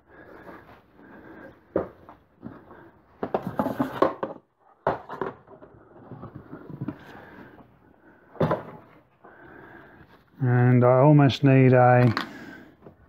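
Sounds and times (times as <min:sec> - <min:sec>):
plastic box knocking and scraping: 0:03.2 - 0:07.4.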